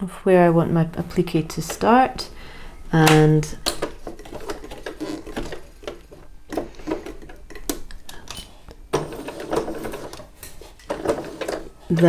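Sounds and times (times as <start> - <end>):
sewing machine stitching: 3.8 - 8.3, 8.9 - 12.0.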